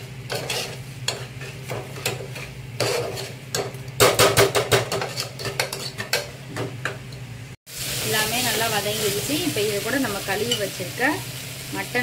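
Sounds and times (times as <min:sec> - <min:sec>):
metal spoon scraping a pot: 0:00.3 - 0:03.6, 0:04.9 - 0:06.3.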